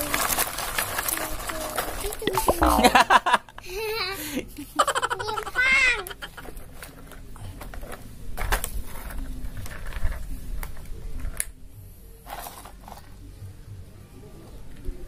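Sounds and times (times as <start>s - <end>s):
plastic toys knocking and scraping: 0.0s - 2.7s, 5.3s - 11.5s, 12.2s - 13.2s.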